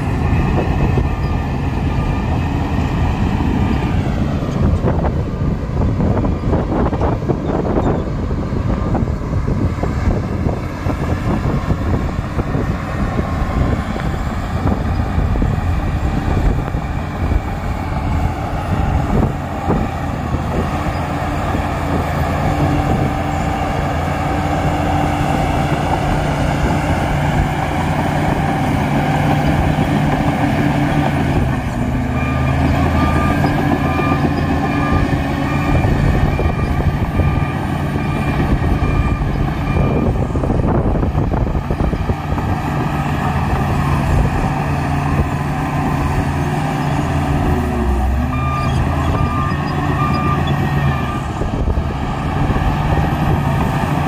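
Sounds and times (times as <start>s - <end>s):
bulldozer diesel engine under load: 0.0s - 54.0s
reversing alarm beeping: 32.0s - 40.5s, 47.7s - 51.4s.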